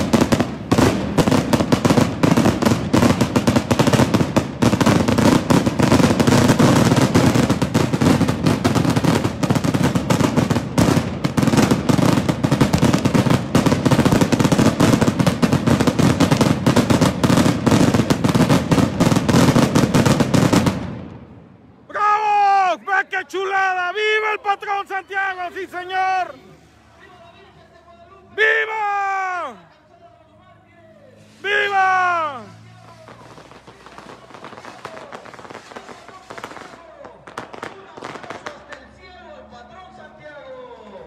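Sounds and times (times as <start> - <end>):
fireworks cracks and bangs: 0.0 - 21.5, 31.3 - 39.2.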